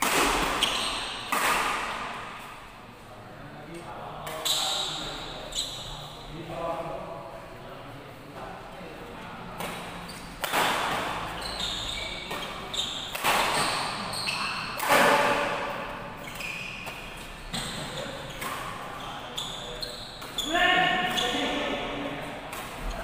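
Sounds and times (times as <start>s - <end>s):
rackets hitting shuttlecock: 0.0s - 2.5s, 9.6s - 11.3s, 12.1s - 18.9s
shoes squeaking on court floor: 0.4s - 1.5s, 4.3s - 6.2s, 9.6s - 21.8s.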